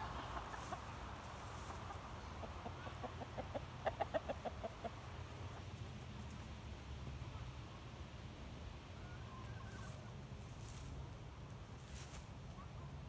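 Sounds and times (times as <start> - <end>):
chicken clucking: 0.0 - 6.5.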